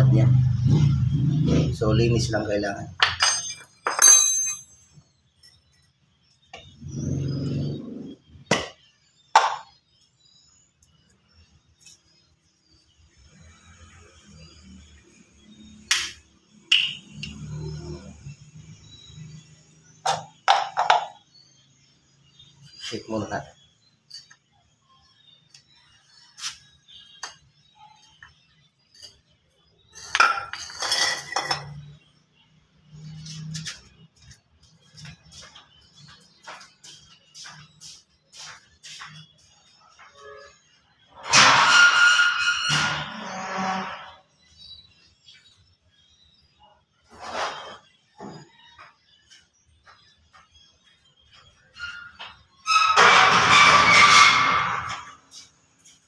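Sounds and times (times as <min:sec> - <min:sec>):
metal tools clattering on tiles: 0:03.0 - 0:05.9, 0:29.9 - 0:32.0, 0:52.7 - 0:55.2.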